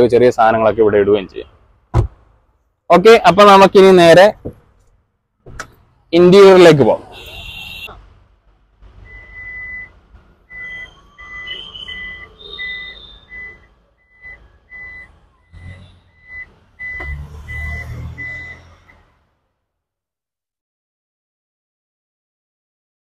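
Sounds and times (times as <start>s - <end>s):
high electronic warning beeps: 10.5s - 18.6s.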